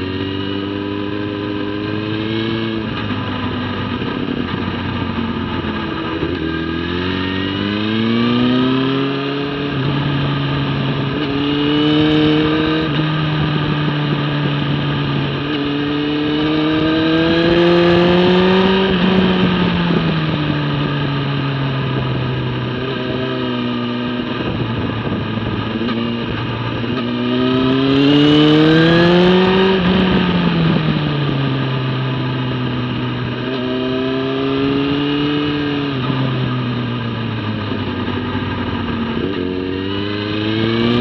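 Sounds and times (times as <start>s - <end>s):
motorcycle engine revving: 0.0s - 41.0s
wind rush: 24.1s - 32.1s.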